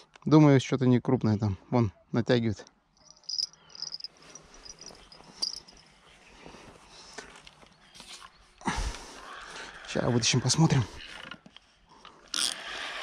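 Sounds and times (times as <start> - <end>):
insects chirping trill: 3.0 - 5.8.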